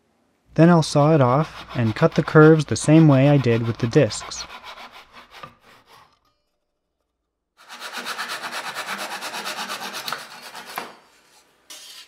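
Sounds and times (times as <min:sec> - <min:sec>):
hand saw cutting wood: 0:00.8 - 0:06.4, 0:07.6 - 0:11.0.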